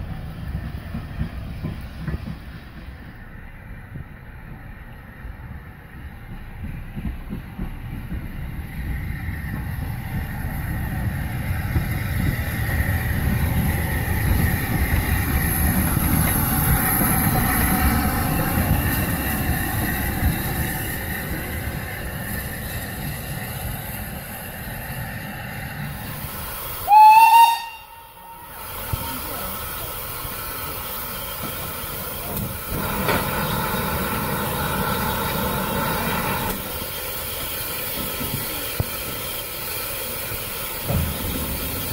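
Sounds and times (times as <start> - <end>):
steam locomotive rumbling: 0.0 - 41.9
steam hissing: 7.7 - 41.9
train whistle blast: 26.8 - 29.6.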